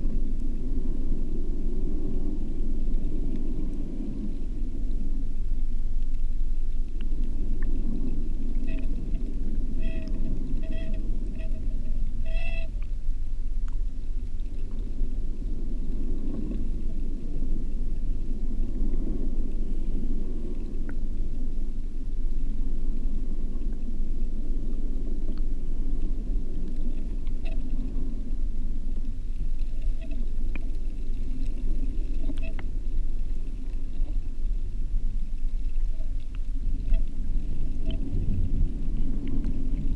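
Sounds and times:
muffled underwater rumble: 0.0s - 39.9s
short squeaky tones: 9.8s - 12.8s.

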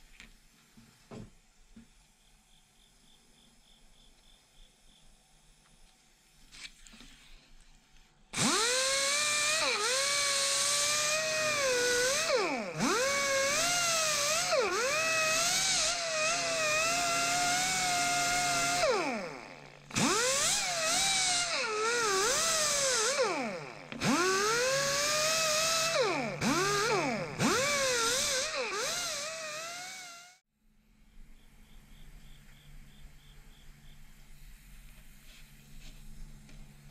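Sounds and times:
die grinder whining: 8.4s - 30.4s.

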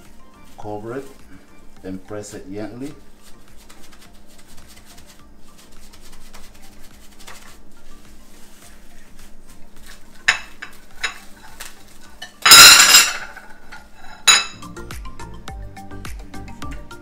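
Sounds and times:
background music: 0.0s - 17.0s
plastic cling wrap crinkling: 2.7s - 12.2s.

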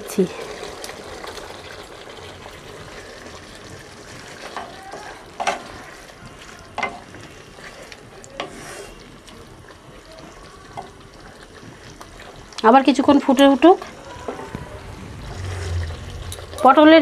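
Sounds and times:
gravy sizzling: 0.0s - 17.0s
wooden spatula stirring in pot: 1.6s - 17.0s.

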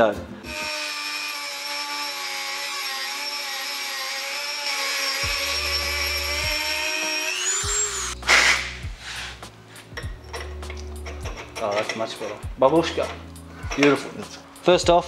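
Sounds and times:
rotary tool grinding metal: 0.5s - 8.7s.

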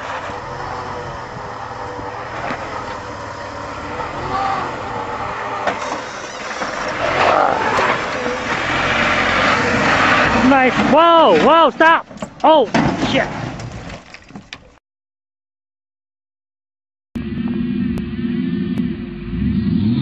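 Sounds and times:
engine running crawling over rock: 0.0s - 12.5s.

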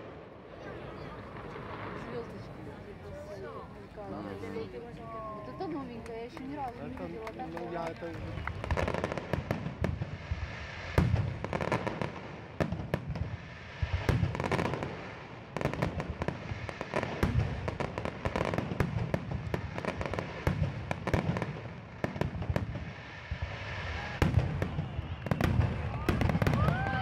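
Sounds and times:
fireworks bangs and crackles: 0.0s - 27.0s.

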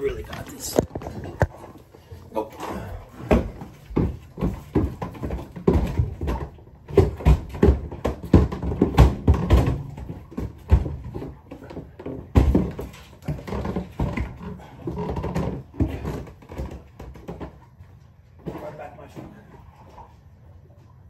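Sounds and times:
heavy footsteps on stairs: 0.0s - 17.4s
men grunting and straining: 2.3s - 3.7s.

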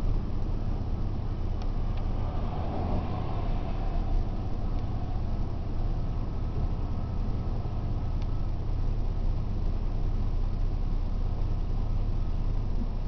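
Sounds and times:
road traffic: 0.0s - 13.0s
strong wind rumble: 0.0s - 13.0s
vehicle passing: 1.4s - 8.6s.

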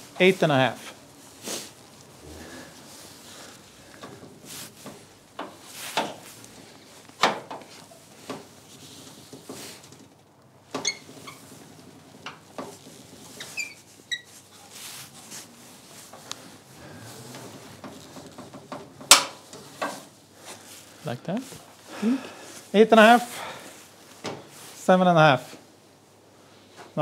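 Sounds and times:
short squeaks: 10.8s - 11.6s, 13.3s - 14.5s.

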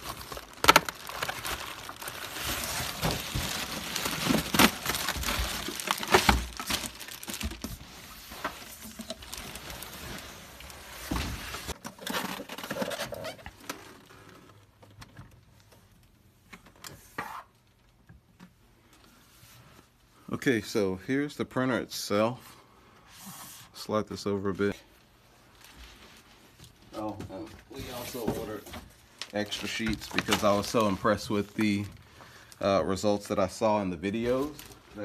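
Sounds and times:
plastic and cardboard crinkling: 0.0s - 16.7s, 25.0s - 35.0s.

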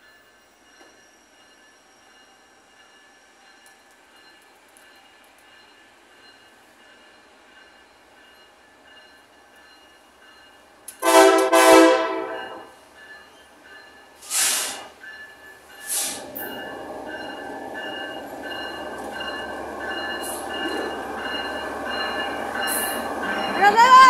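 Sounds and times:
locomotive horn blast: 11.0s - 12.7s
brief hisses: 14.2s - 14.9s, 15.8s - 16.3s.

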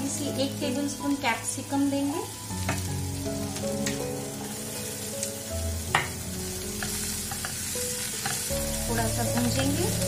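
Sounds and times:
soft background music: 0.0s - 10.0s
vegetables sizzling in a frying pan: 0.0s - 10.0s
spatula tapping a pan: 5.9s - 6.2s, 6.8s - 8.5s.

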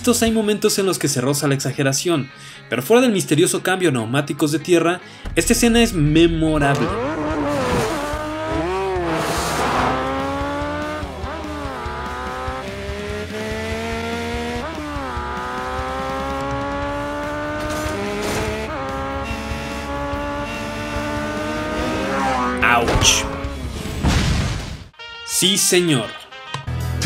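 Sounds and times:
motorcycle engine accelerating: 5.2s - 24.0s.

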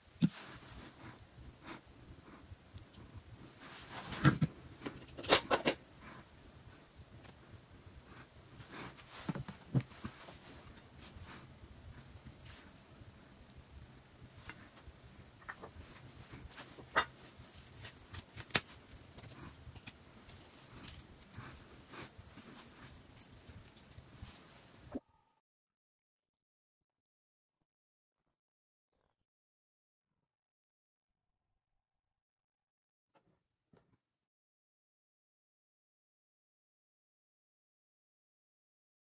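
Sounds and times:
high-pitched insect trill: 0.0s - 25.0s.

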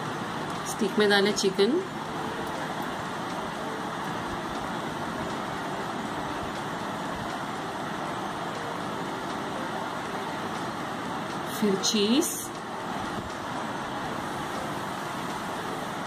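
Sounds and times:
steady background noise: 0.0s - 16.0s.

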